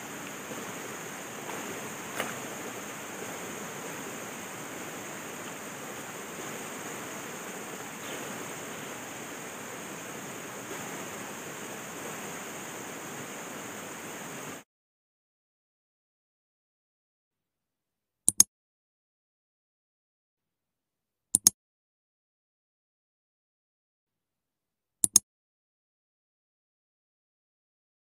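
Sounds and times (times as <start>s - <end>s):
stream water running: 0.0s - 14.6s
sharp click: 25.0s - 25.2s.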